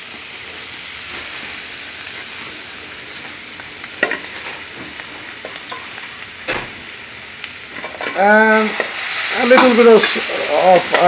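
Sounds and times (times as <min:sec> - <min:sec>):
chickpeas sizzling in oil: 0:00.0 - 0:11.0
metal spoon stirring in pan: 0:07.7 - 0:11.0.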